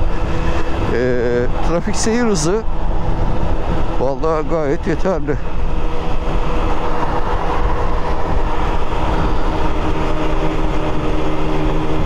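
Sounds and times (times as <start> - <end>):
wind rushing over microphone: 0.0 - 12.0
scooter engine at high revs: 2.8 - 12.0.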